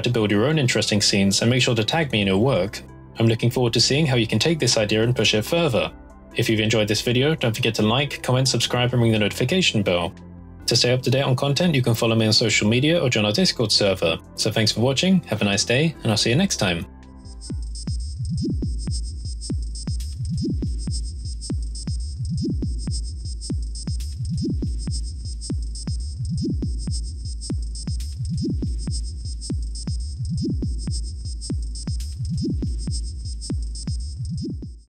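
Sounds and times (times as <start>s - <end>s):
deep bass drone: 1.4s - 15.0s, 15.7s - 34.9s
quick ticking beat: 17.2s - 34.9s.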